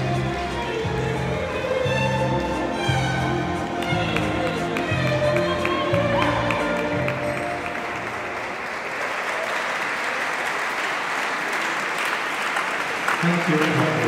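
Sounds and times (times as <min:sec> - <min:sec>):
waltz music: 0:00.0 - 0:08.6
audience applause: 0:03.5 - 0:14.0.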